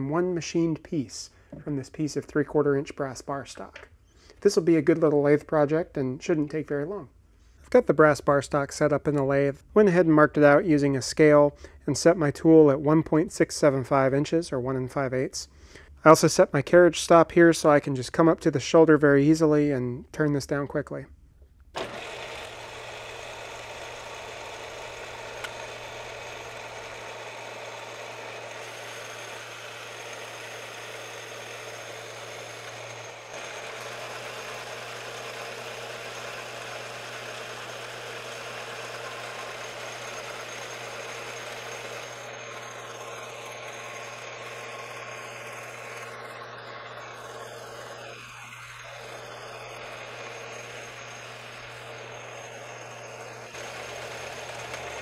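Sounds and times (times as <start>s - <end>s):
metal lathe motor hum: 21.8s - 55.0s.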